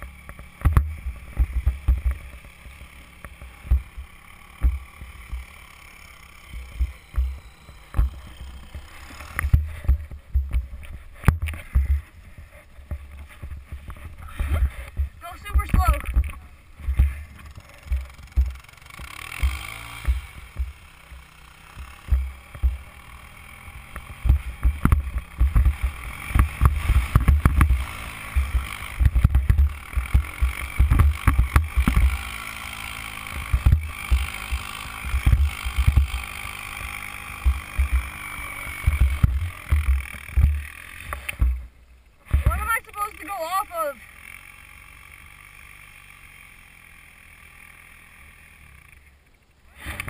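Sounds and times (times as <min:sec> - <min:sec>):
atv engine running: 0:00.0 - 0:50.0
low rumble and thumps on camera: 0:00.6 - 0:02.4, 0:03.4 - 0:05.5, 0:06.5 - 0:08.4, 0:09.4 - 0:18.8, 0:19.4 - 0:20.8, 0:21.8 - 0:23.0, 0:23.9 - 0:32.2, 0:33.4 - 0:36.2, 0:37.4 - 0:42.8.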